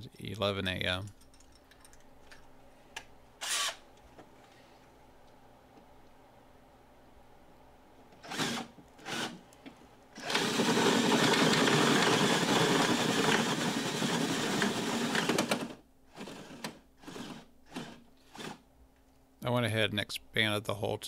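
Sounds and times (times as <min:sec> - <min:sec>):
power drill running: 0:03.4 - 0:03.8, 0:08.2 - 0:09.4, 0:10.2 - 0:18.6.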